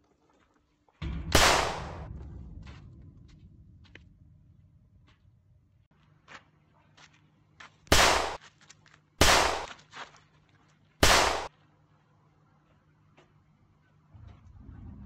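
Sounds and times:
pistol shots: 1.3 - 2.0, 7.9 - 8.4, 9.2 - 9.8, 11.0 - 11.5.

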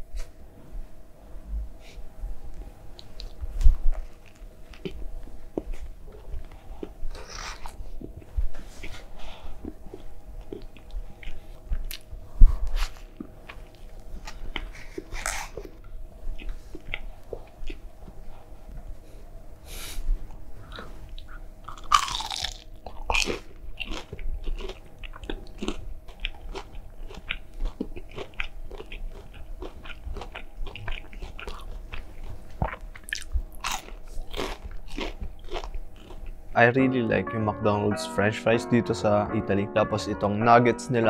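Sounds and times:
biting and crunching food: 2.9 - 9.0, 9.6 - 12.1, 20.8 - 36.4.

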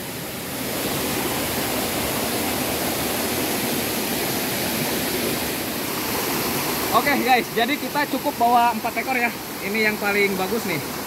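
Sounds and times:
stream splashing over stones: 0.0 - 11.0.

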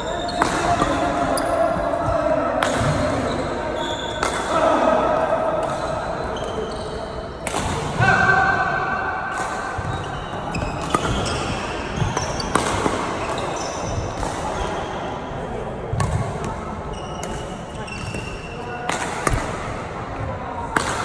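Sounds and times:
rackets striking shuttlecock: 0.1 - 3.3, 9.3 - 14.7, 17.2 - 19.8.

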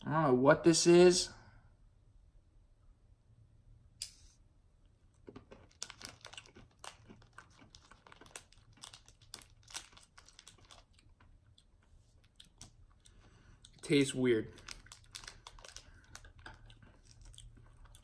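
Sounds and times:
candy wrapper crinkling: 5.3 - 18.0.

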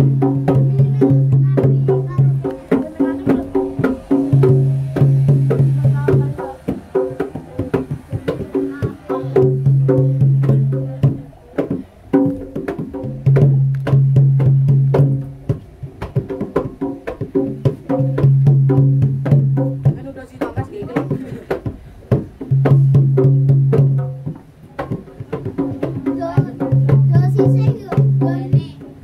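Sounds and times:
dry drum and wood percussion: 0.0 - 29.0
low held tone: 2.2 - 8.2.

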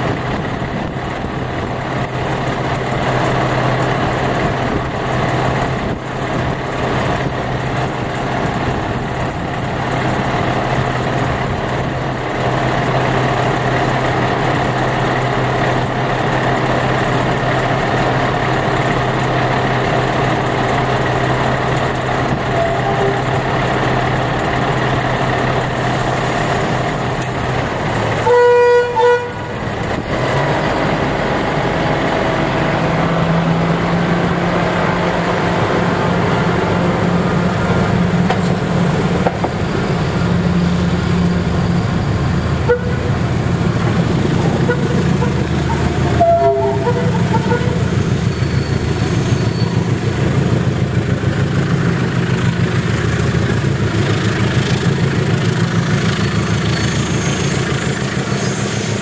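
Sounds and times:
diesel locomotive engine: 0.0 - 59.0
train horn toot: 22.5 - 23.4, 28.2 - 29.6, 42.6 - 43.2, 44.6 - 48.8.

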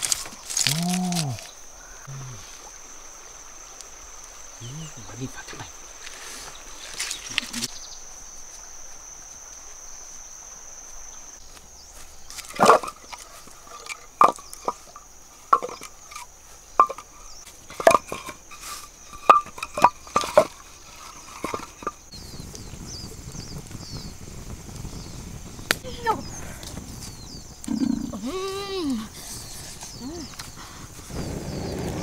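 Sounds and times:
high insect drone: 0.0 - 32.0
wooden logs knocking together: 12.3 - 22.1.

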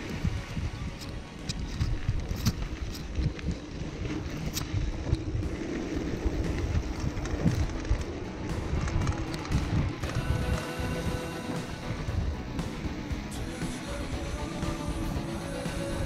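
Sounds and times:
bike clicks and rattles: 0.0 - 16.0
bike tyres rumbling on dirt: 0.0 - 16.0
wind on microphone: 0.0 - 16.0.

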